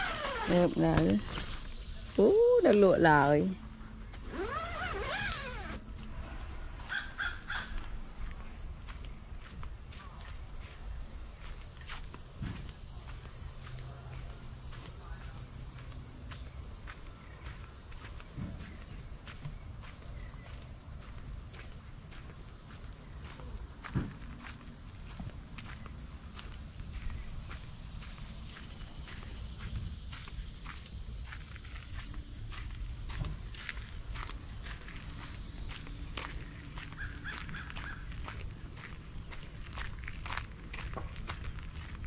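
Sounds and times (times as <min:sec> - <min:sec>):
pulsing insect chorus: 0:00.0 - 0:42.0.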